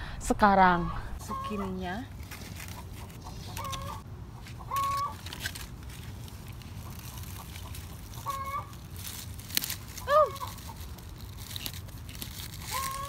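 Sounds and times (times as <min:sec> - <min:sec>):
leaves rustling: 0:01.2 - 0:13.0
chicken clucking: 0:02.8 - 0:05.2, 0:06.8 - 0:08.8.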